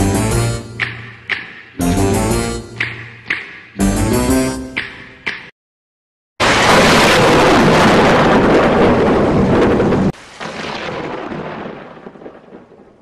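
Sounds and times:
thunder rumbling: 6.4s - 13.0s.

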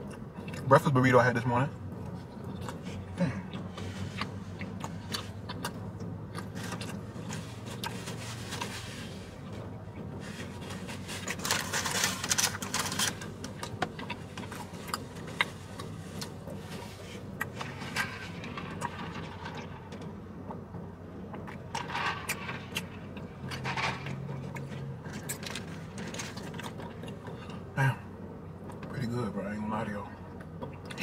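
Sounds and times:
faint low car hum: 0.0s - 31.0s
paper wrapper rustling: 10.6s - 13.3s.

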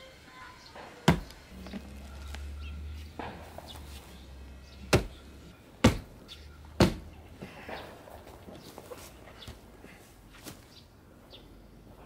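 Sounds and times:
axe chopping into log: 1.0s - 1.4s, 4.9s - 5.2s, 5.8s - 6.1s, 6.8s - 7.1s.

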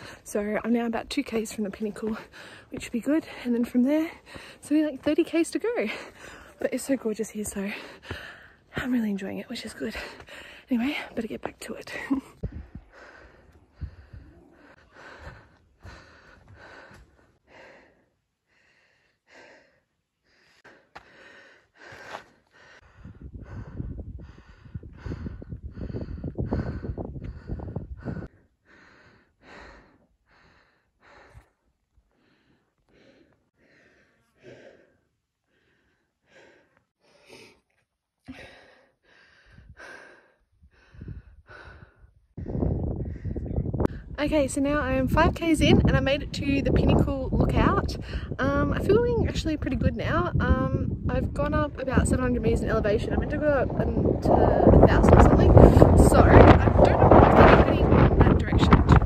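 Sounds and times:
person breathing hard: 0.0s - 0.3s, 2.2s - 3.4s, 4.2s - 4.6s, 12.2s - 44.1s, 48.0s - 48.4s
low rumbling: 22.6s - 31.3s, 40.6s - 59.0s.

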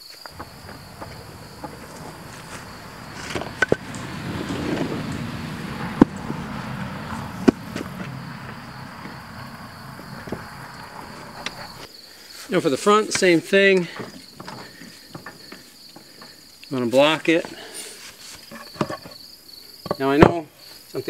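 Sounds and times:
crickets chirping: 0.0s - 21.0s
wood scraping over board: 0.3s - 11.9s.

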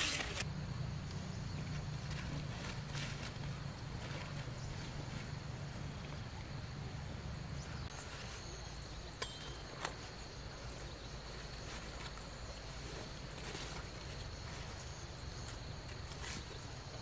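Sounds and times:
faint high-pitched tone: 9.0s - 10.3s.

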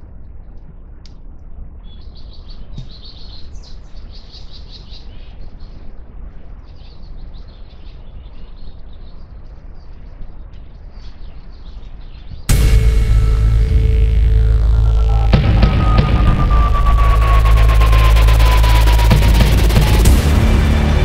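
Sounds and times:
small birds chirping: 1.4s - 12.5s
steady low rumble: 12.5s - 21.0s.

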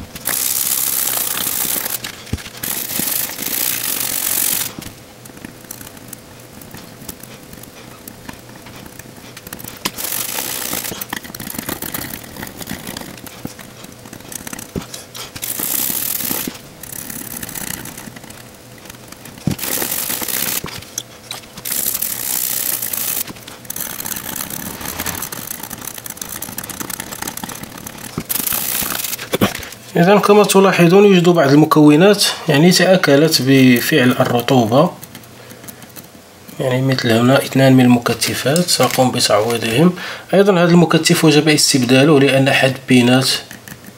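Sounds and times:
scrubbing on a circuit board: 0.0s - 29.8s.

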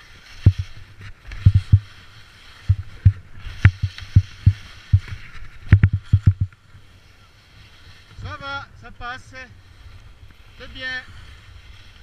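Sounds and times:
skis scraping on hard snow: 0.0s - 12.0s
dull thumps of skis and poles: 0.3s - 2.0s, 2.6s - 6.6s.

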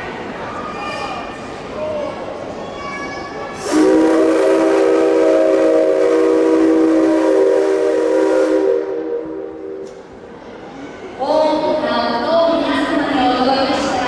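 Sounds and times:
steam locomotive whistle: 3.6s - 9.9s.

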